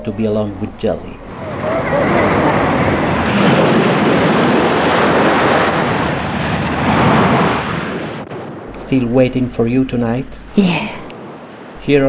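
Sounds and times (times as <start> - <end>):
loud steady rushing noise: 0.0 - 12.0.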